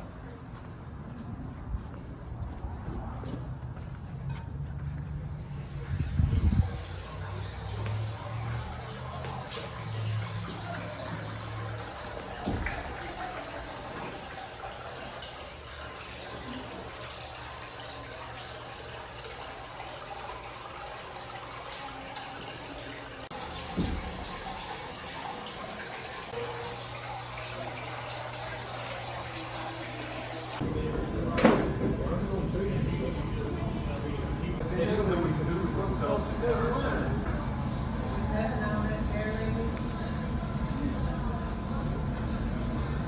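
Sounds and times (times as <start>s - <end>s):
water trickling and splashing: 5.3s - 30.7s.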